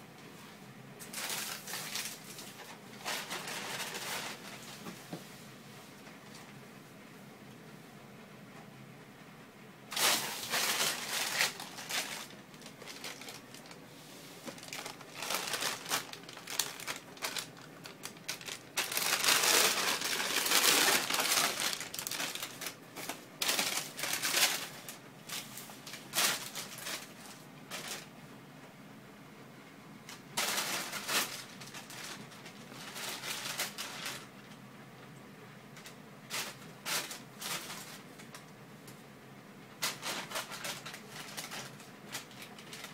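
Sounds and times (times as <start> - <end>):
plastic bag crinkling: 1.0 - 4.8, 9.9 - 28.1, 30.4 - 34.5, 35.8 - 38.4, 39.8 - 42.9.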